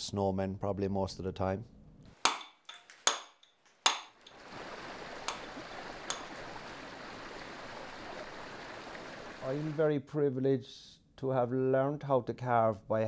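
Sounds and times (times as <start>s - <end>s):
mallet striking chisel into stone: 2.2s - 4.2s
stream rushing: 4.2s - 9.8s.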